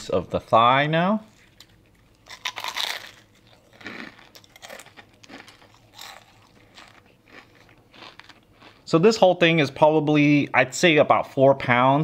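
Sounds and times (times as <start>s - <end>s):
close-up chewing: 1.3s - 8.9s
fried chicken crust crunching: 1.3s - 9.0s.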